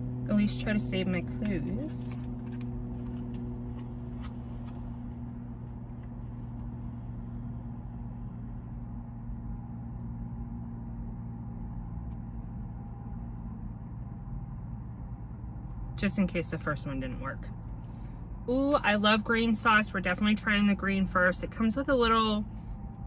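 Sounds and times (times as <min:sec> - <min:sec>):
car engine hum in cabin: 0:00.0 - 0:23.0.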